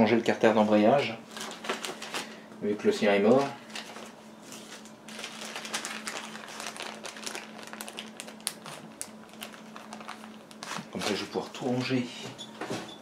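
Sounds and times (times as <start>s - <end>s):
plastic bags crinkling: 1.3s - 2.4s, 3.0s - 11.9s.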